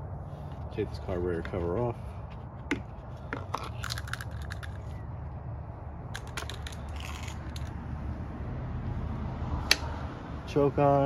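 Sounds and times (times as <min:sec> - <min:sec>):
sharp clicks and clatter: 0:03.4 - 0:05.0, 0:06.1 - 0:07.8.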